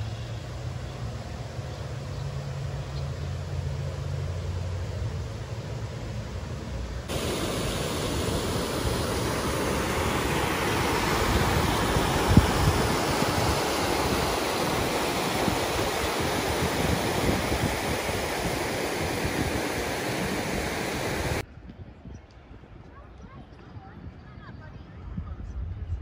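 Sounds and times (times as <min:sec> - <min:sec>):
water rushing over rocks: 0:07.1 - 0:21.4.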